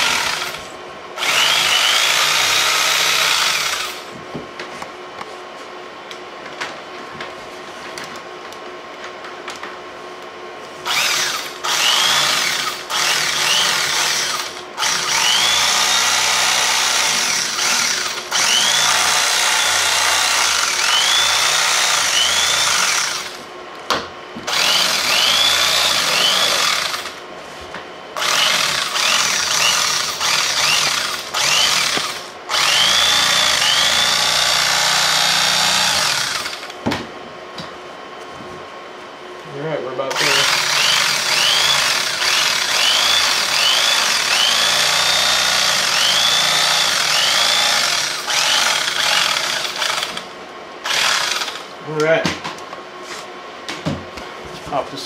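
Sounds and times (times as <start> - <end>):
electric carving knife whining: 0.0 - 4.1, 10.8 - 23.4, 24.5 - 27.2, 28.2 - 36.8, 40.1 - 50.2, 50.8 - 51.7.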